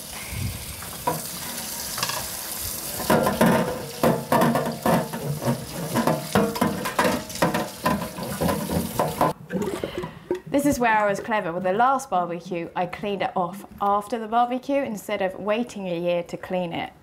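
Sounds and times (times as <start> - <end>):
tap water running over rack: 0.6 - 9.4
brush scrubbing a rack: 3.0 - 9.4.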